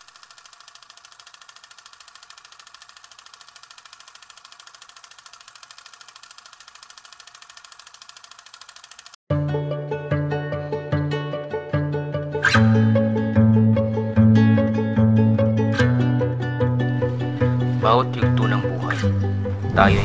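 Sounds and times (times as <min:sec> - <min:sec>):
film projector clatter: 0:00.0 - 0:09.2
music: 0:09.3 - 0:20.0.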